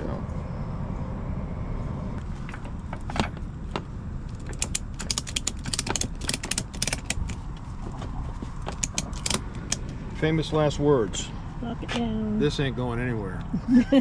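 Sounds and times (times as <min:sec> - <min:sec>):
steady low rumble: 0:00.0 - 0:14.0
ratchet strap clicking: 0:04.3 - 0:07.5, 0:08.6 - 0:09.9.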